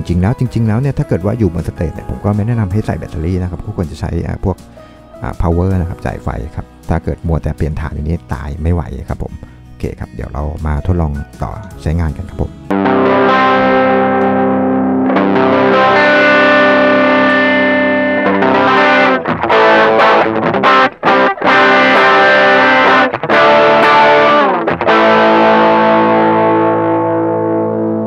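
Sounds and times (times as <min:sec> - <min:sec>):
choppy guitar strums: 0:12.2 - 0:28.0
distorted electric guitar chords: 0:12.4 - 0:28.0.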